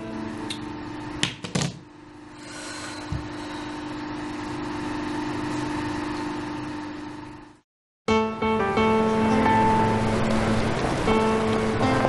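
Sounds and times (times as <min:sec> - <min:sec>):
low drone score: 0:08.6 - 0:12.0.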